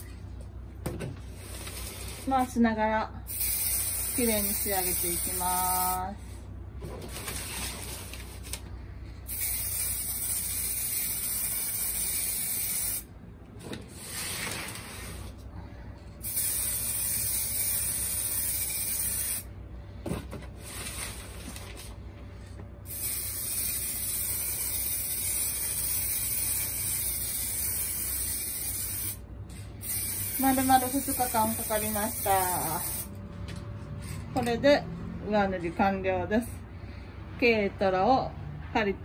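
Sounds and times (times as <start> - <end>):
spray can hissing: 3.3 - 6.0, 9.3 - 13.1, 16.2 - 19.5, 22.9 - 29.2, 29.8 - 33.1.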